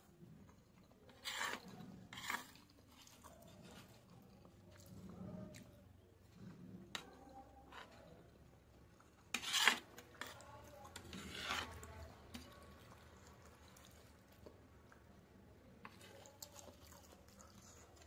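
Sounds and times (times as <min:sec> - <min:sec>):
metal spoon scraping a plate: 0:01.0 - 0:04.1, 0:06.9 - 0:08.2, 0:09.2 - 0:12.4.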